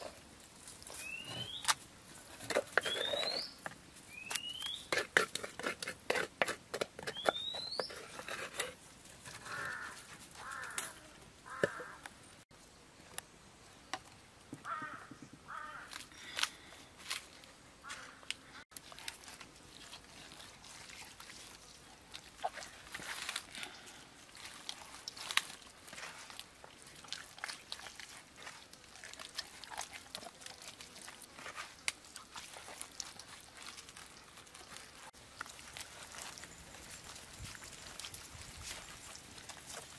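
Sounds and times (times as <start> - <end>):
harsh bird caws: 9.4 - 12.1, 14.6 - 16.4, 17.8 - 18.3
hands squelching paste into meat: 18.7 - 39.9.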